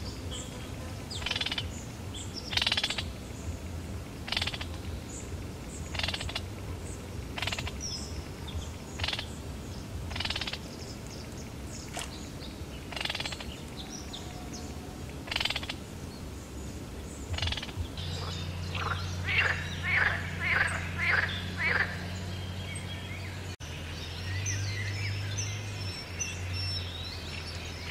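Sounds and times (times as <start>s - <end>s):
steady low hum: 0.0s - 27.9s
small animal rasping calls: 17.3s - 22.5s.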